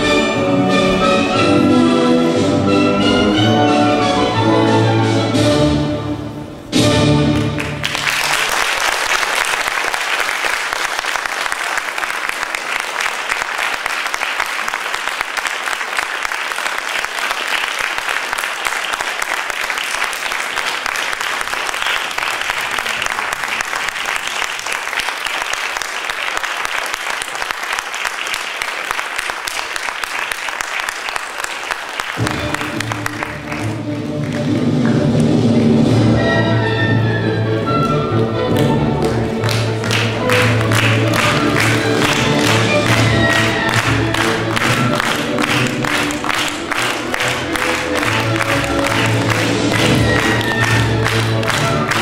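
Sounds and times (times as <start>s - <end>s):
orchestral music: 0.0s - 8.7s, 32.0s - 52.0s
audience applauding: 7.2s - 35.9s, 38.5s - 52.0s.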